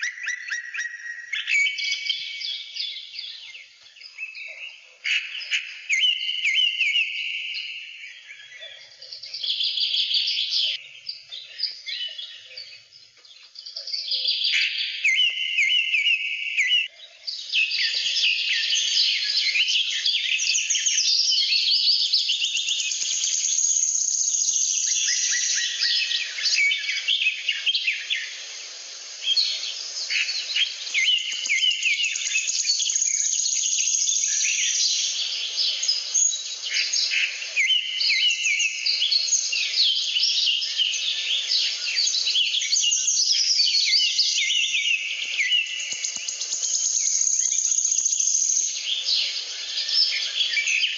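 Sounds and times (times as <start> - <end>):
bird trills: 0.0 - 2.8
birds chirping and singing: 0.0 - 50.9.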